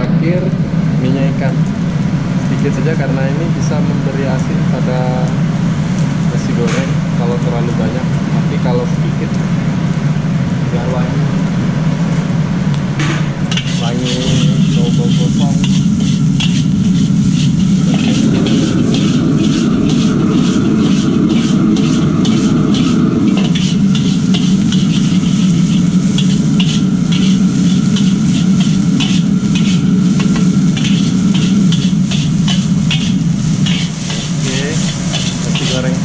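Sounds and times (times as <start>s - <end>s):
gas burner roar: 0.0s - 36.0s
metal spatula scraping wok: 13.2s - 36.0s.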